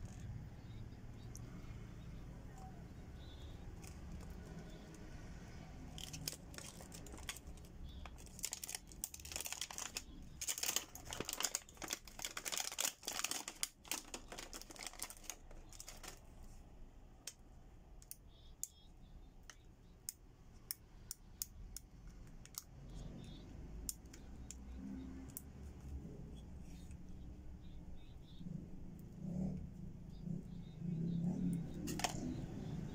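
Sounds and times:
plastic packaging crinkling: 5.8s - 16.5s, 31.8s - 32.2s.

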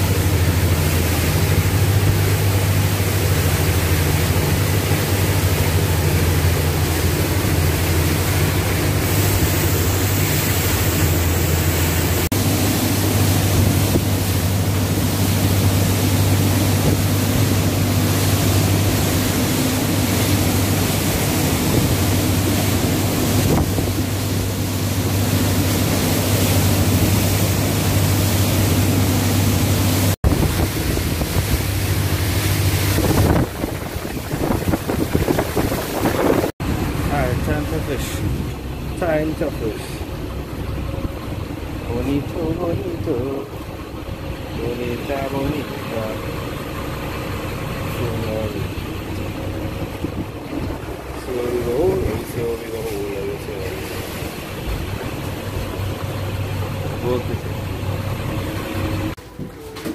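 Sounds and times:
motorboat engine humming: 0.0s - 59.9s
water rushing along hull: 0.0s - 59.9s
wind buffeting microphone: 23.2s - 24.2s, 30.2s - 37.0s, 49.7s - 52.6s.

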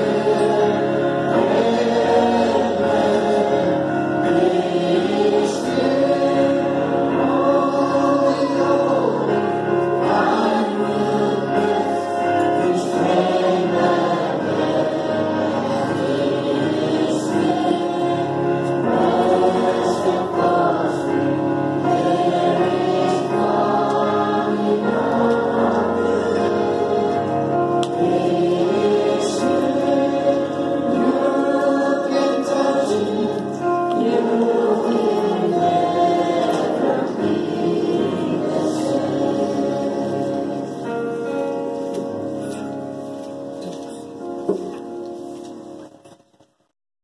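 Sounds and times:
voices singing a hymn: 0.0s - 42.4s.

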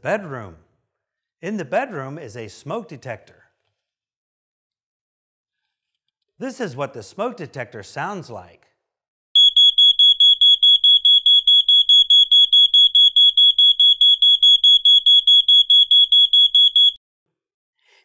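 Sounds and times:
smoke alarm rapid beeping: 9.4s - 17.0s.

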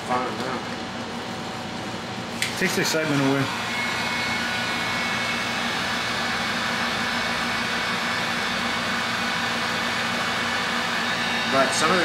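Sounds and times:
heat gun blowing air: 2.4s - 12.0s.

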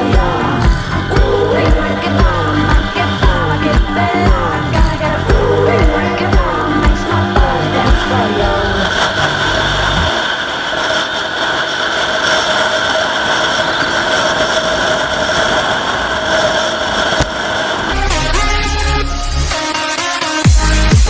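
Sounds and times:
motorcycle engine running: 0.0s - 10.3s
wind noise: 0.0s - 18.0s.

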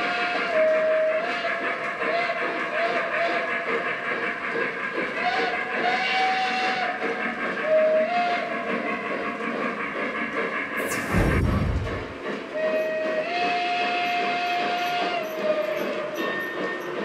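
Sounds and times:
model train steam whistle: 0.0s - 3.6s, 5.1s - 7.0s, 7.6s - 9.0s, 12.6s - 16.8s
sudden low thump: 10.8s - 12.2s
steady steam hiss: 10.8s - 12.3s.

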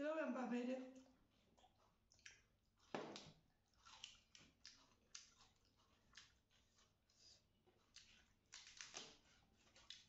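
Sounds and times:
wet mouth smacks: 1.6s - 6.4s.

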